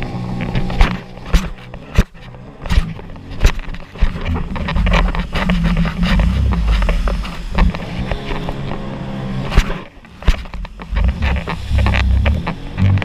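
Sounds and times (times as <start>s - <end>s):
jet ski engine: 0.0s - 13.0s
hull slapping waves: 2.7s - 8.9s
wind on microphone: 2.7s - 13.0s.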